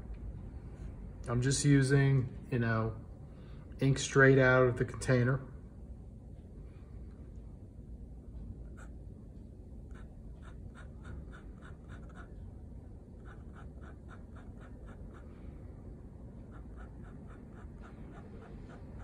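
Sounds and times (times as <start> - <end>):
dip pen scratching on paper: 9.8 - 12.4, 13.1 - 15.5, 16.4 - 19.0.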